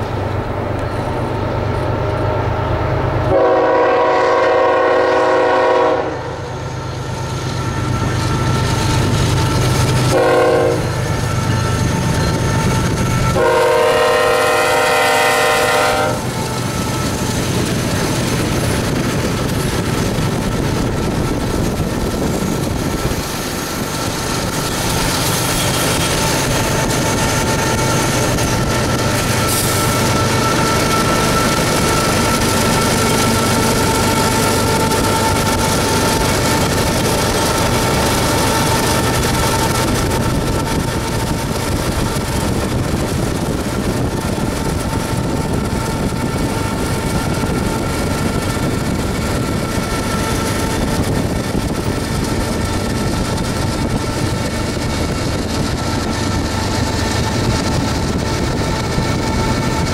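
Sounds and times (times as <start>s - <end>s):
locomotive engine rumble: 0.0s - 59.9s
train wheels on rails: 0.0s - 59.9s
locomotive air horn: 3.3s - 6.5s, 10.1s - 11.0s, 13.0s - 16.8s.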